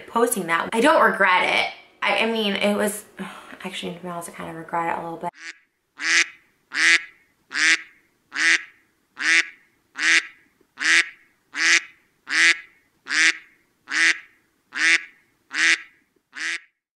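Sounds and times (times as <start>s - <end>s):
duck-like quacking honk: 5.4s - 14.2s, 14.8s - 16.7s.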